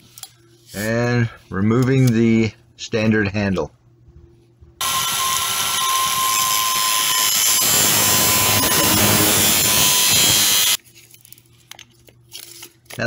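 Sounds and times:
angle grinder cutting: 4.8s - 10.8s.

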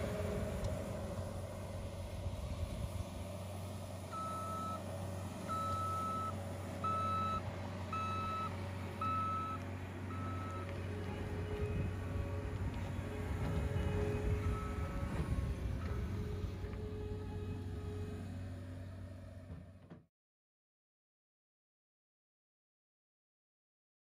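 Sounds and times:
diesel engine running: 0.0s - 20.0s
reversing alarm beeping: 4.1s - 4.8s, 5.5s - 17.3s.

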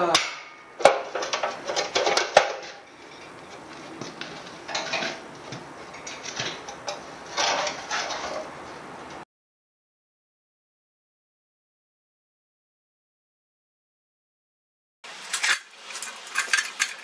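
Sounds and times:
sharp metal strikes: 0.0s - 1.1s
metal clinking and rattling: 0.2s - 8.6s, 15.3s - 17.0s.

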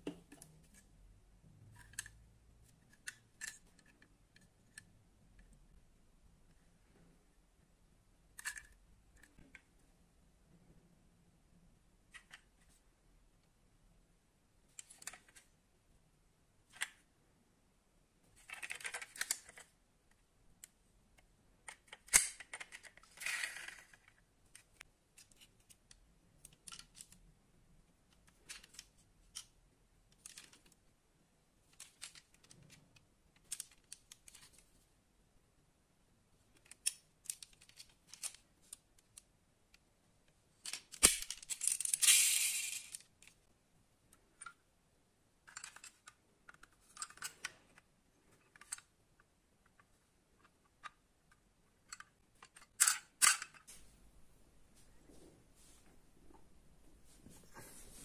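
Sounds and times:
metal toy cars clicking: 21.7s - 24.0s, 40.6s - 43.4s.

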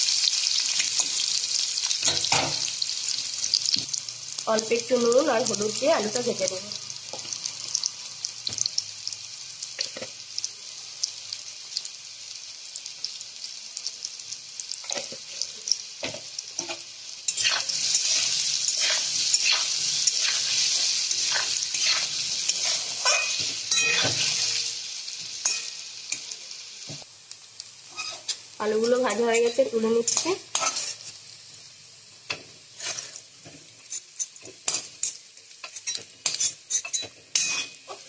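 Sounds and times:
potatoes sizzling in oil: 0.0s - 38.0s
spatula scraping and tapping pan: 16.0s - 24.6s, 30.1s - 31.1s, 32.3s - 38.0s.

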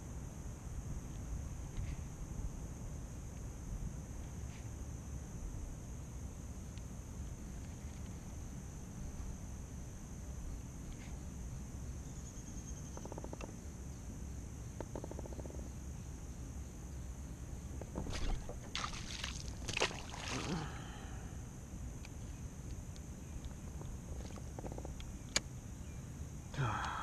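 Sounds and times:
high insect drone: 0.0s - 27.0s
sharp knocks and splashes on water: 17.9s - 20.6s.

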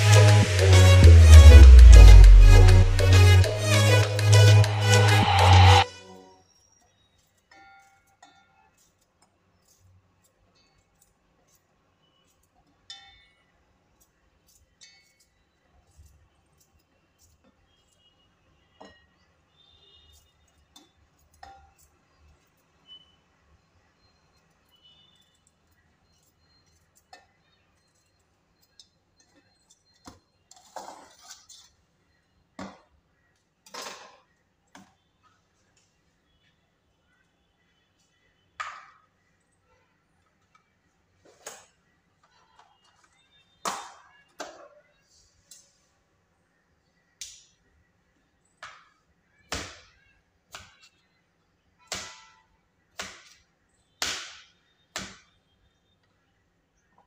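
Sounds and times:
knife scraping steel jar: 30.5s - 31.8s.

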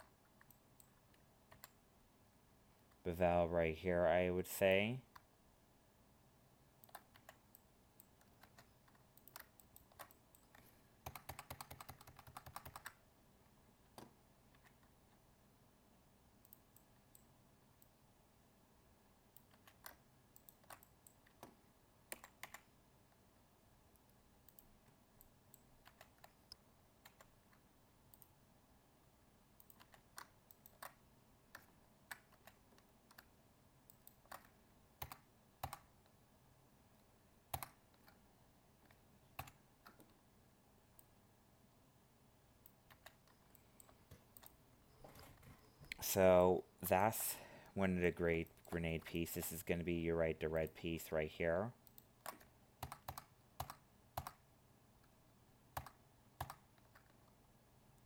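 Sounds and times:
keyboard and mouse clicks: 0.0s - 1.8s, 5.1s - 5.3s, 6.8s - 13.0s, 13.8s - 15.2s, 16.4s - 18.0s, 19.3s - 23.2s, 23.9s - 28.4s, 29.6s - 36.2s, 36.9s - 38.2s, 38.8s - 40.2s, 42.6s - 46.0s, 51.8s - 54.4s, 55.0s - 57.4s.

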